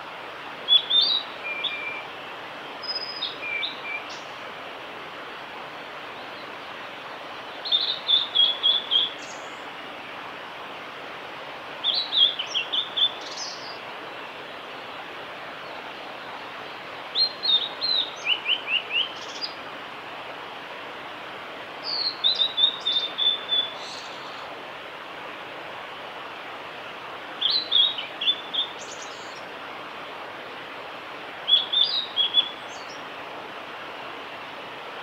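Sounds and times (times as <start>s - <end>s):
background hiss: 0.0s - 35.0s
bird singing: 0.7s - 2.0s, 2.8s - 4.3s, 7.5s - 9.6s, 11.8s - 13.8s, 15.6s - 19.6s, 21.8s - 24.4s, 27.4s - 29.4s, 31.5s - 33.0s.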